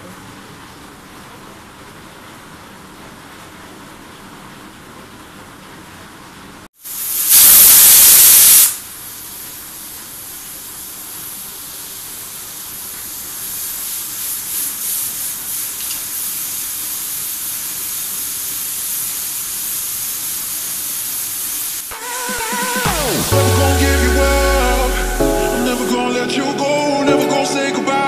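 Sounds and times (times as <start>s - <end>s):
pressure cooker hissing steam: 6.8s - 22.0s.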